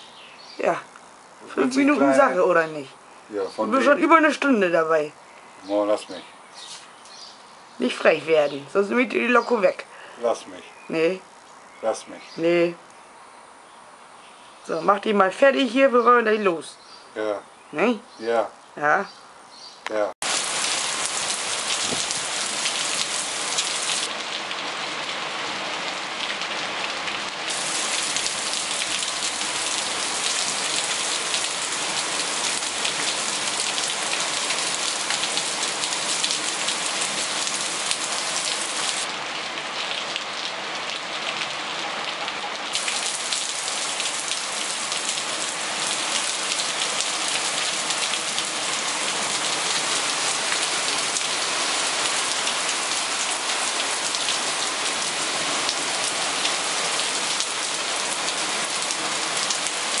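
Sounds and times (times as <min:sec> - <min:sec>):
heavy rain on paving: 0:19.9 - 1:00.0.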